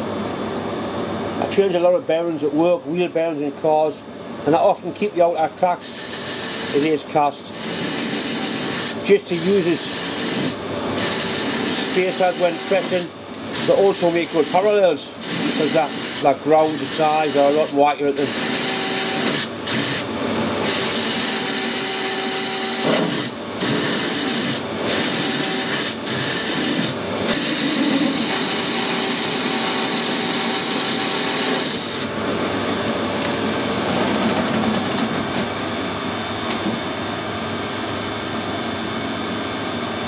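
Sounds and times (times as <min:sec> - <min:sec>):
lathe cutting hiss: 0:05.8 - 0:32.1.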